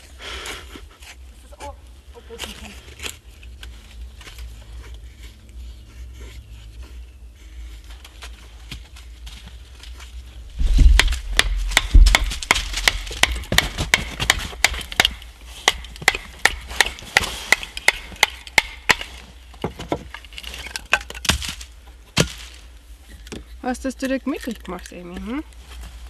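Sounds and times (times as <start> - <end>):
knife chopping wooden pole: 10.6 - 20.1.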